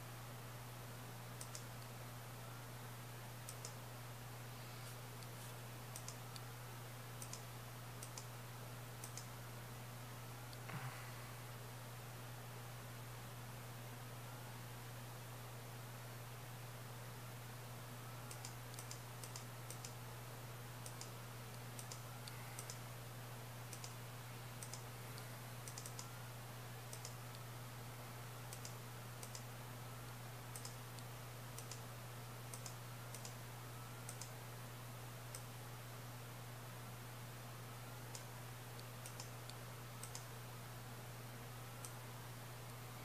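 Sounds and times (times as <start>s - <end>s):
steady low hum: 0.0s - 43.0s
computer mouse buttons clicking: 1.4s - 1.7s, 3.5s - 3.8s, 5.2s - 6.5s, 7.2s - 7.4s, 8.0s - 8.3s, 9.0s - 9.3s, 18.3s - 20.0s, 20.8s - 22.8s, 23.7s - 24.0s, 24.6s - 24.8s, 25.6s - 26.1s, 26.9s - 27.4s, 28.5s - 29.5s, 30.5s - 31.8s, 32.5s - 33.4s, 34.0s - 34.3s, 38.1s - 40.3s.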